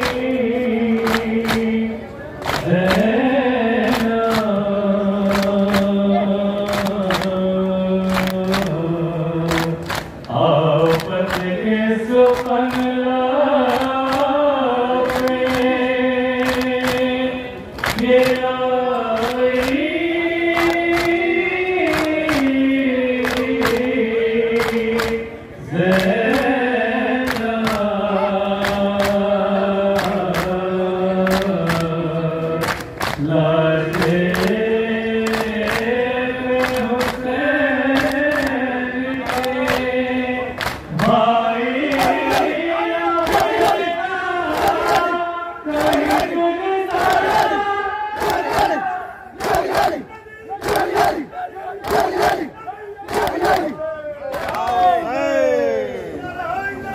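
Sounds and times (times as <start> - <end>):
group chanting in unison: 0.0 - 56.2
hands slapping chests: 5.3 - 5.9, 20.6 - 21.2, 24.6 - 25.2, 32.6 - 33.2, 36.6 - 37.2, 38.0 - 38.6, 40.6 - 41.2, 45.8 - 46.3, 48.2 - 48.8, 49.4 - 50.0, 50.6 - 52.5, 53.1 - 54.7.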